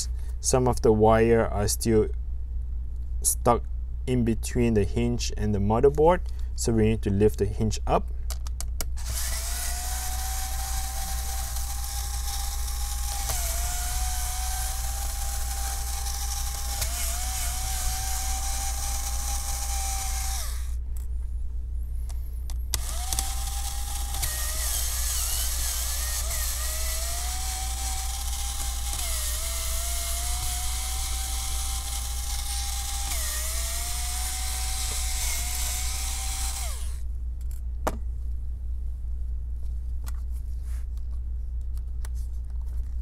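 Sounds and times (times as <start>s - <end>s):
electric screwdriver whine: 9.0s - 20.8s, 22.7s - 37.0s.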